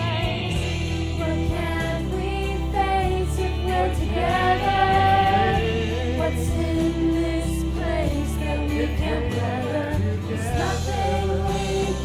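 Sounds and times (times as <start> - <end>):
choir singing in harmony: 0.0 - 12.0
instrumental backing: 0.0 - 12.0.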